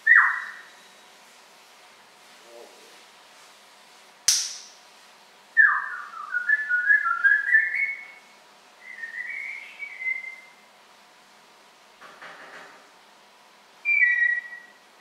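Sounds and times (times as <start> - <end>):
sharp click: 4.3 - 4.8
parrot whistling: 13.8 - 14.8.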